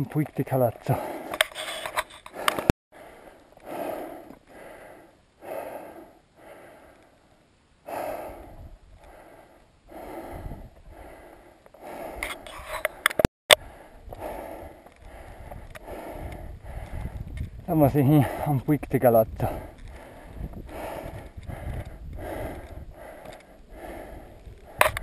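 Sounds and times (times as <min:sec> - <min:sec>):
person breathing hard: 0:00.8 - 0:17.6, 0:19.4 - 0:25.0
sharp clicks and knocks: 0:12.2 - 0:13.3.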